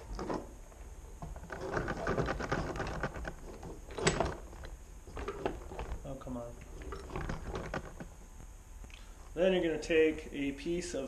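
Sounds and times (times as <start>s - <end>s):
tools clicking and rattling on workbench: 0.0s - 0.5s, 1.2s - 8.2s.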